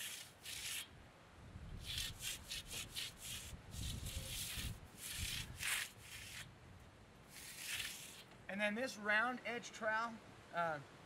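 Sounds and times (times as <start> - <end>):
trowel scraping wet concrete: 0.0 - 0.9, 1.8 - 6.5, 7.3 - 8.3.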